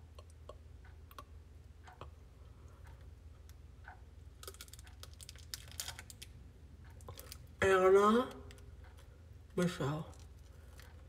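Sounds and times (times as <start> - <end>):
candy wrapper crinkling: 4.4 - 6.4, 7.0 - 7.6.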